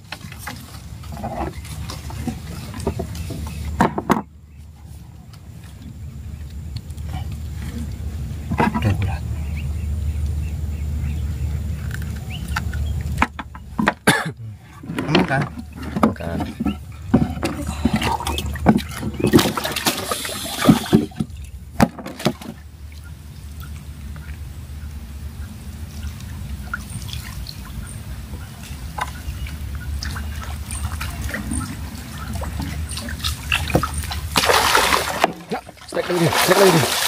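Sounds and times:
faint water trickling: 0.0s - 37.0s
fish knocking against boat planks: 0.1s - 4.3s, 12.5s - 22.6s.

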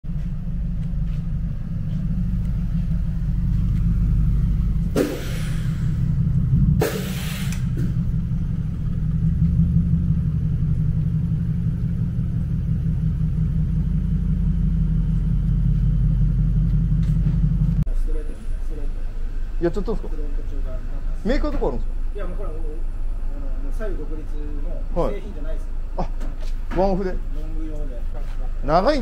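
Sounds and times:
car exhaust note: 0.1s - 26.2s
hissing bursts: 4.9s - 6.2s, 6.8s - 8.1s.

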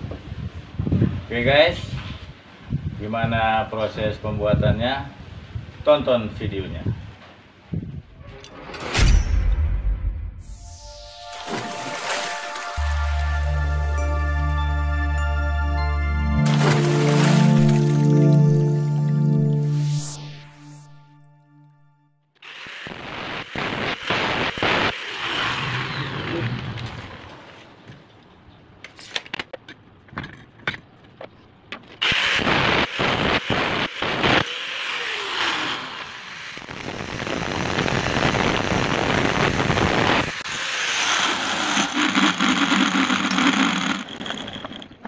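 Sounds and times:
angle grinder cutting steel: 22.4s - 26.8s, 32.0s - 45.0s.

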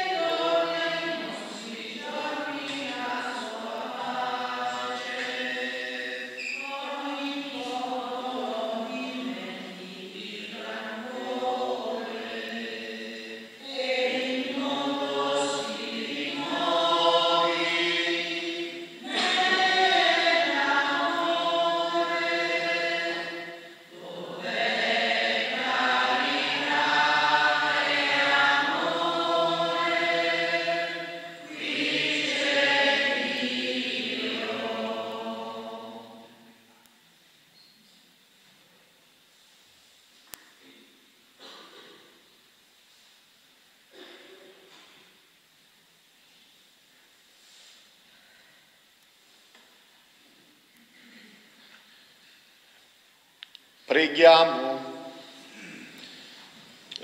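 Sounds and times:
voices singing a hymn: 0.0s - 36.7s, 53.5s - 57.0s.

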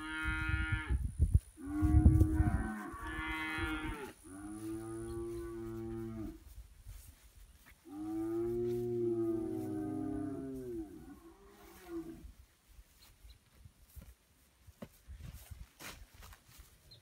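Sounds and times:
cattle mooing: 7.9s - 12.2s.

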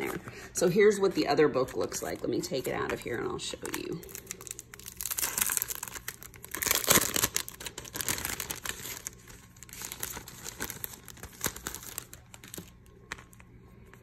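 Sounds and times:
plastic sleeve crinkling: 1.8s - 14.0s.

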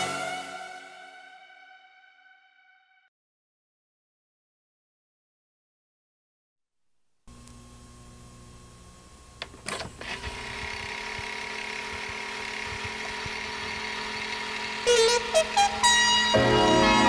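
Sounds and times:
tape hiss: 7.0s - 17.0s
motor hum: 7.3s - 17.0s
video player mechanical clicks: 9.4s - 13.8s
rising notes: 12.5s - 17.0s.

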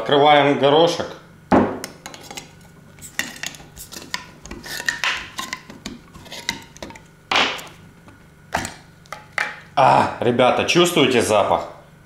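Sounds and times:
opener scraping metal jar lid: 2.0s - 7.8s.

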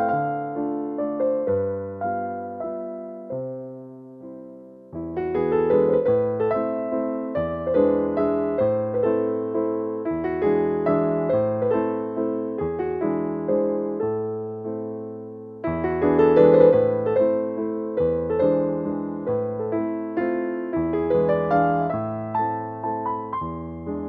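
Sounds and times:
background piano music: 0.0s - 24.0s.

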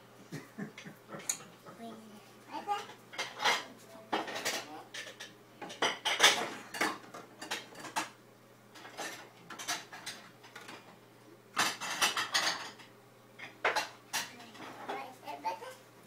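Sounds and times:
dishes clinking and clattering: 2.7s - 15.0s.

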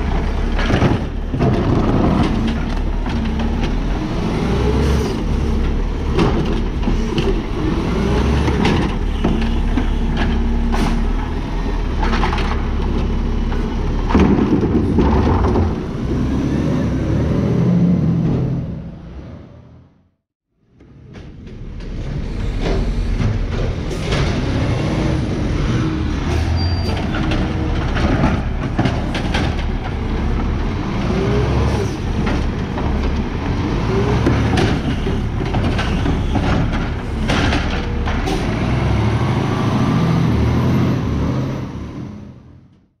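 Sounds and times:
clanks and bangs of cart and arm: 0.0s - 16.3s, 20.7s - 39.8s
garbage truck engine revving: 0.0s - 19.8s, 21.9s - 42.7s.

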